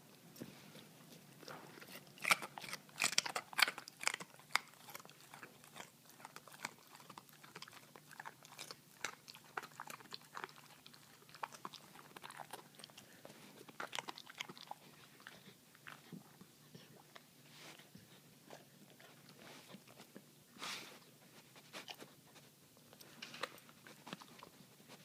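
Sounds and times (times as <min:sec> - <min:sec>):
dog crunching carrot: 0:01.1 - 0:16.4, 0:21.6 - 0:25.0.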